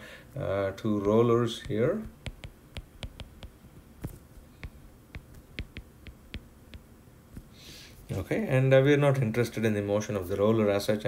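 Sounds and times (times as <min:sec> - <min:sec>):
stylus tapping on glass screen: 0:01.0 - 0:07.5.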